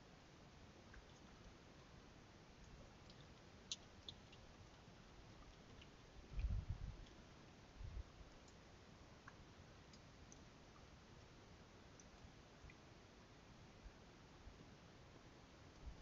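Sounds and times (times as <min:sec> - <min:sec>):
faint steady hiss: 0:00.0 - 0:16.0
faint ticks: 0:00.8 - 0:02.0, 0:02.6 - 0:07.6, 0:08.3 - 0:12.9
dull low thumps: 0:06.3 - 0:07.0.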